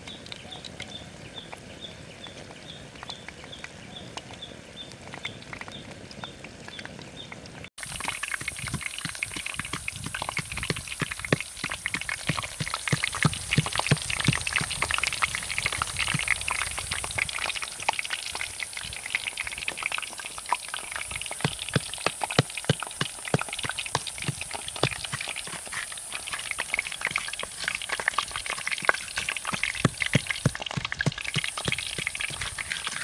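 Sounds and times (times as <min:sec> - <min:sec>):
hot oil sizzling and crackling: 0:00.0 - 0:33.0.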